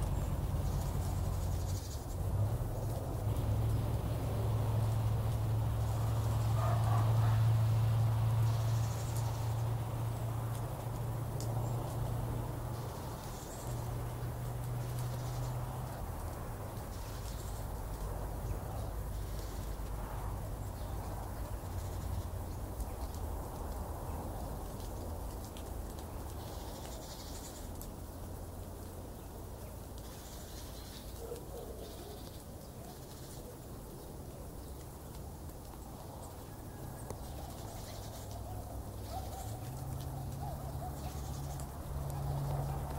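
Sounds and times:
faint bird calls: 0:30.0 - 0:34.8, 0:36.2 - 0:42.9.

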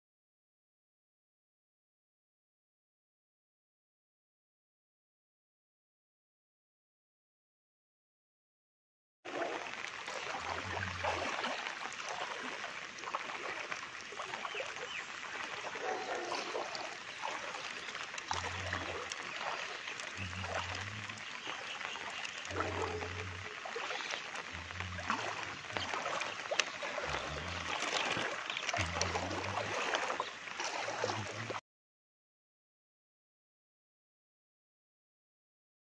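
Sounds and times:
floodwater rushing: 0:09.3 - 0:31.6.

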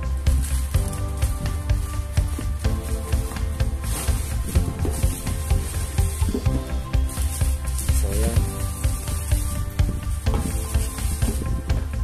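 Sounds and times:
music with steady bass beat: 0:00.0 - 0:12.0.

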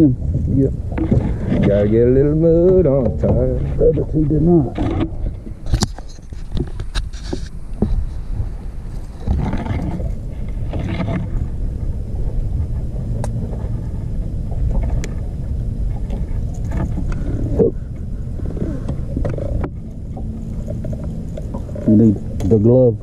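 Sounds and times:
wind rumbling on microphone: 0:00.0 - 0:23.0.

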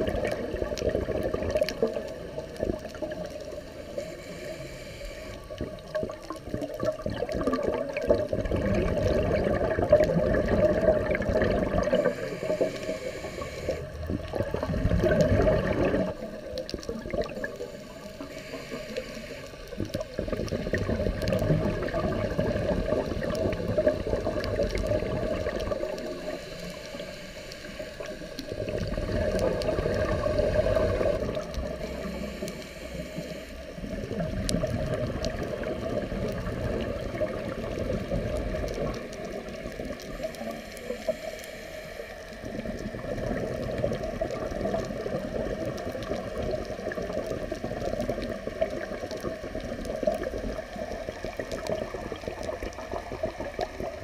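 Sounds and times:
rushing exhaled bubbles: 0:00.0 - 0:04.1, 0:05.4 - 0:18.9, 0:19.6 - 0:33.0, 0:33.8 - 0:41.0, 0:42.4 - 0:54.0
diver breathing through regulator: 0:03.4 - 0:05.6, 0:11.6 - 0:14.0, 0:17.4 - 0:19.8, 0:25.4 - 0:33.9, 0:40.1 - 0:42.5.

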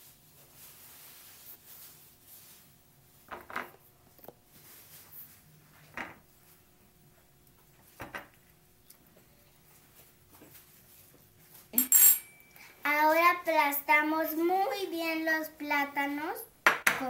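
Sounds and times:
knife clinking on ceramic plate: 0:11.8 - 0:12.6.

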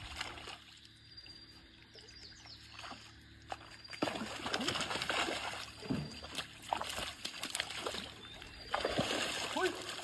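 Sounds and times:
fish splashing in water: 0:02.7 - 0:10.0.

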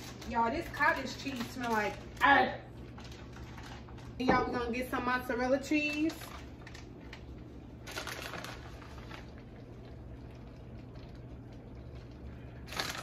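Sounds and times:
plastic bag rustling: 0:00.0 - 0:04.2, 0:05.7 - 0:11.3, 0:12.6 - 0:13.0
faint steady hum: 0:00.0 - 0:13.0.

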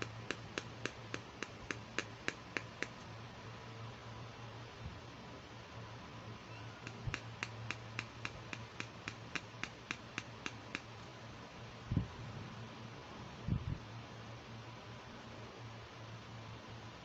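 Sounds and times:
fingernail tapping plastic dish: 0:00.0 - 0:03.0, 0:06.8 - 0:10.9.

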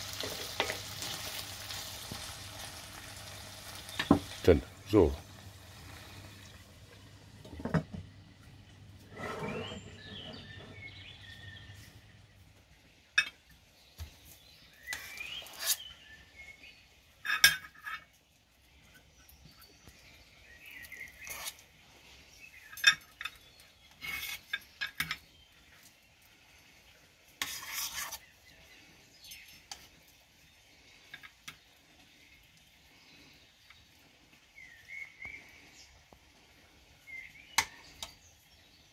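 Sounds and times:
metal spoon scraping a pot: 0:09.0 - 0:11.6, 0:14.9 - 0:16.0, 0:20.9 - 0:21.6, 0:22.6 - 0:25.3, 0:27.4 - 0:28.3.

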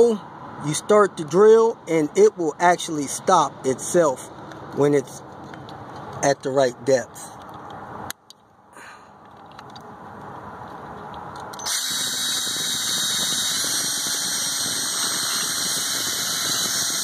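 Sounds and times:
drill squealing while cutting metal: 0:11.6 - 0:17.0.

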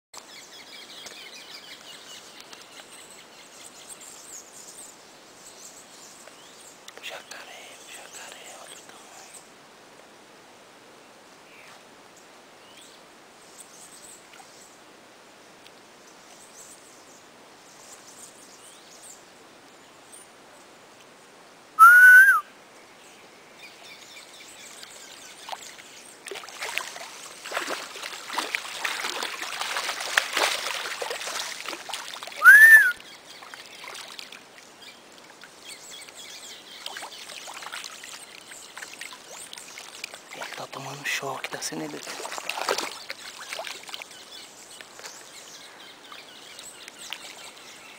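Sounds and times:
short whistled calls: 0:21.8 - 0:22.5, 0:32.4 - 0:33.1
animal splashing in water: 0:25.5 - 0:32.6, 0:36.8 - 0:40.8, 0:41.4 - 0:44.1.

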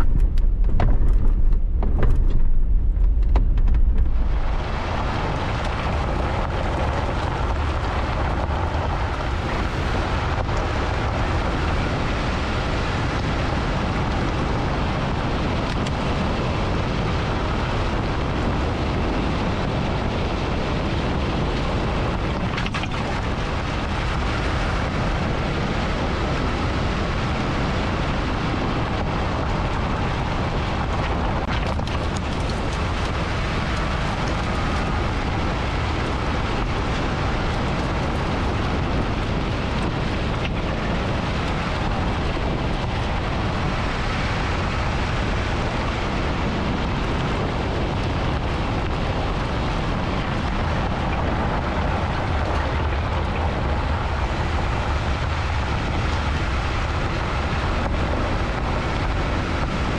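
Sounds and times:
road and wind noise: 0:00.0 - 0:59.9.

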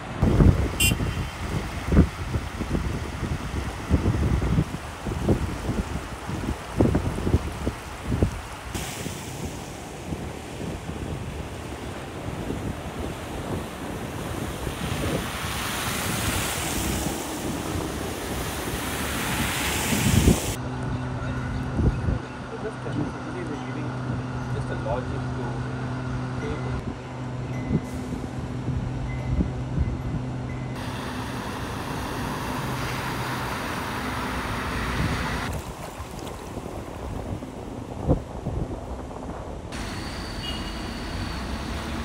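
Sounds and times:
floodwater rushing and splashing: 0:00.0 - 0:20.6, 0:30.8 - 0:39.0, 0:39.7 - 0:42.0
water swishing from tyres: 0:00.1 - 0:20.6, 0:30.8 - 0:39.0
wind buffeting microphone: 0:00.1 - 0:20.6, 0:26.8 - 0:40.6
car engine humming: 0:30.8 - 0:35.5.

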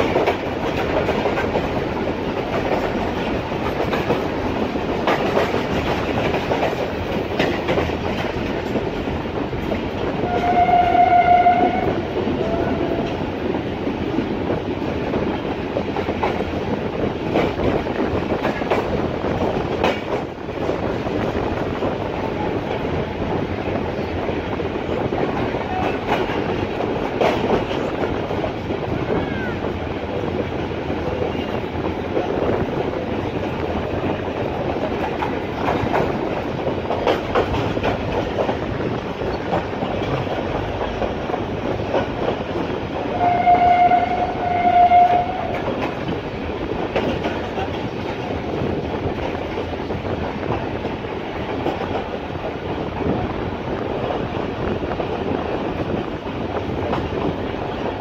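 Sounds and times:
clacks over rail joints: 0:00.0 - 0:58.0
train wheels rumbling on rails: 0:00.0 - 0:58.0
train horn: 0:10.2 - 0:13.2, 0:43.1 - 0:45.7.

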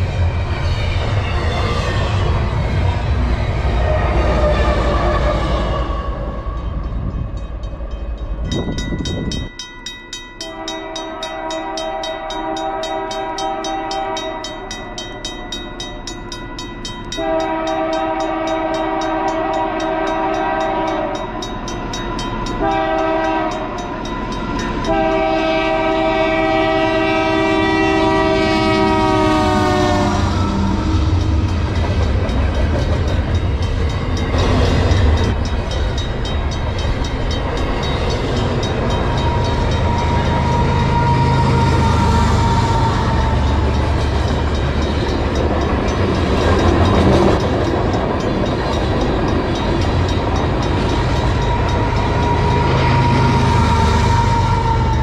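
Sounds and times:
freight train rumbling past: 0:00.0 - 0:55.0
locomotive air horn blasts: 0:03.8 - 0:06.6, 0:10.4 - 0:14.7, 0:17.2 - 0:21.2, 0:22.6 - 0:23.8, 0:24.9 - 0:31.2, 0:39.2 - 0:43.6, 0:51.4 - 0:55.0.

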